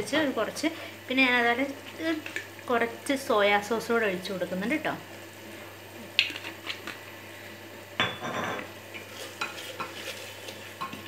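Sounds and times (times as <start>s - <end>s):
faint sizzling: 0.0s - 11.0s
wooden spoon scraping pot: 9.0s - 11.0s.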